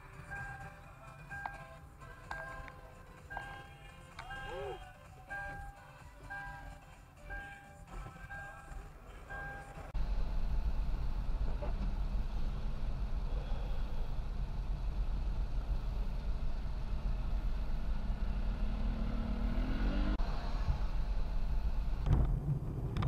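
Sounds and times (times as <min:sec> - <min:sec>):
road and engine rumble in car: 0:00.0 - 0:23.0
vehicle engine speeding up: 0:14.2 - 0:23.0.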